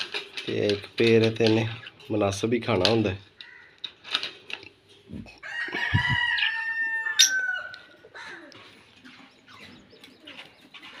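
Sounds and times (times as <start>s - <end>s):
small birds chirping: 0.5s - 5.2s, 5.8s - 11.0s
rooster crowing: 5.4s - 8.4s.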